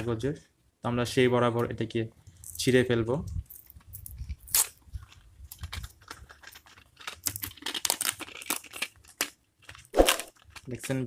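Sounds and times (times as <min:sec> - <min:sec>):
paper packaging tearing: 0:04.4 - 0:11.0.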